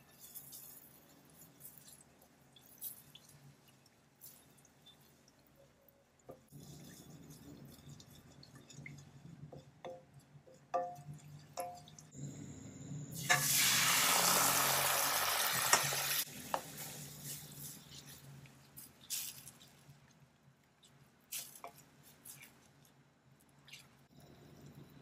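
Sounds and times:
liquid poured splashing into pan: 0:13.2 - 0:16.1.

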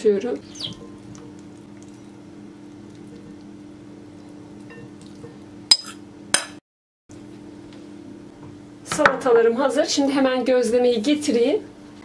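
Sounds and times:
spoon clinking against glass: 0:05.7 - 0:06.0.

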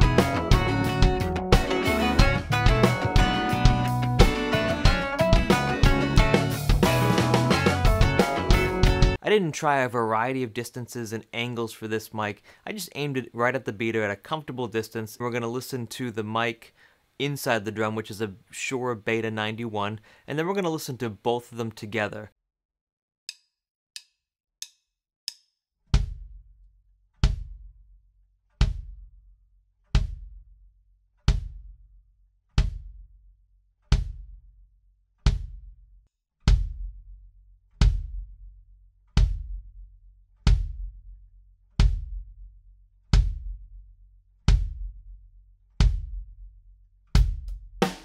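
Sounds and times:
kick drum booms: 0:26.0 - 0:26.4, 0:27.2 - 0:27.7, 0:28.6 - 0:29.1, 0:29.9 - 0:30.5, 0:31.3 - 0:31.8, 0:32.6 - 0:33.1, 0:33.9 - 0:34.4, 0:35.3 - 0:35.8, 0:36.5 - 0:37.0, 0:37.8 - 0:38.4, 0:39.2 - 0:39.8, 0:40.4 - 0:41.0, 0:41.8 - 0:42.4, 0:43.2 - 0:43.7, 0:44.5 - 0:45.1, 0:45.8 - 0:46.4, 0:47.2 - 0:48.0.

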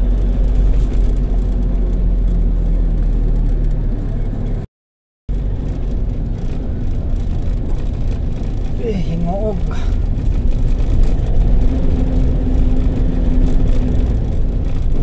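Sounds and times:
vehicle engine and road rumble: 0:00.0 - 0:04.7, 0:05.3 - 0:15.0.

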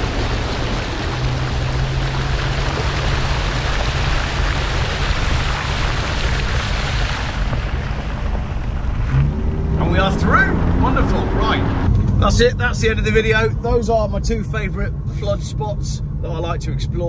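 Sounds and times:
water spraying off car wheel: 0:00.0 - 0:10.8
low engine hum: 0:00.0 - 0:17.0.

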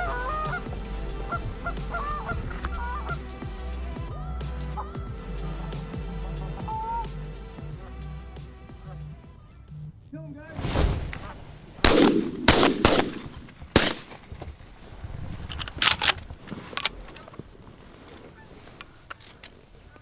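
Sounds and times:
shotgun blasts: 0:11.8 - 0:14.2.

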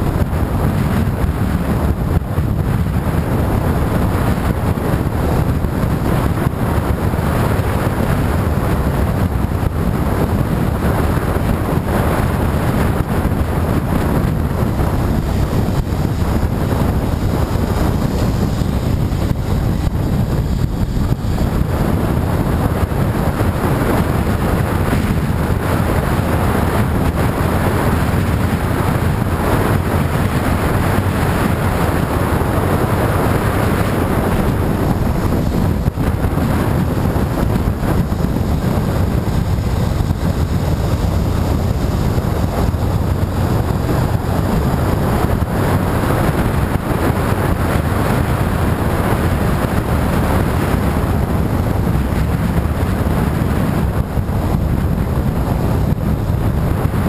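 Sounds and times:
motorcycle engine and road noise: 0:00.0 - 0:57.0
wind rumbling on microphone: 0:00.0 - 0:57.0.

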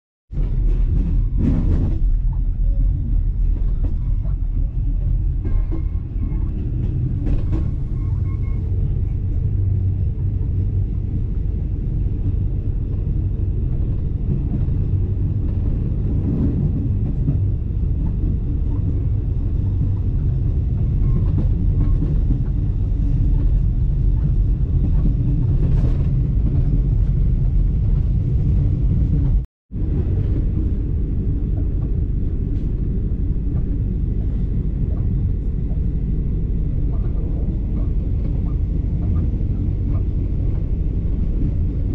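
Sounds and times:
train rumble inside carriage: 0:00.3 - 0:41.9.

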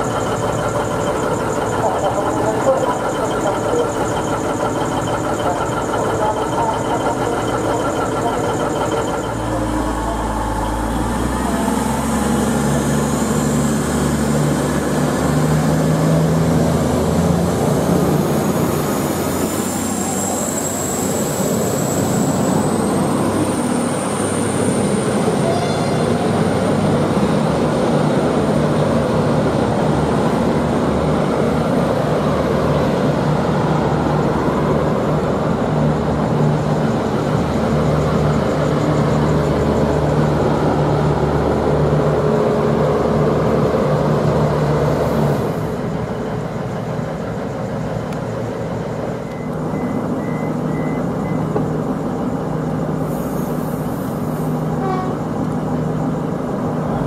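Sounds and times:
high whine: 0:00.0 - 0:13.9
diesel train engines under load: 0:00.0 - 0:57.0.

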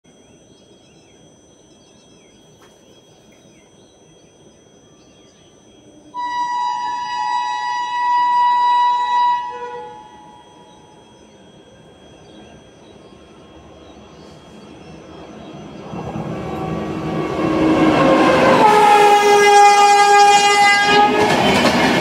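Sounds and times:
birds chirping: 0:00.1 - 0:17.3
train horn blast: 0:06.1 - 0:10.9, 0:16.4 - 0:22.0.

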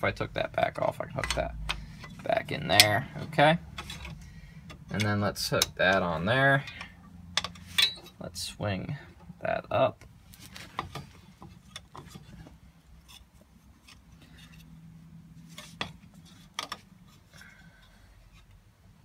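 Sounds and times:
metallic clicks of brake parts: 0:01.1 - 0:03.0, 0:03.7 - 0:08.2.

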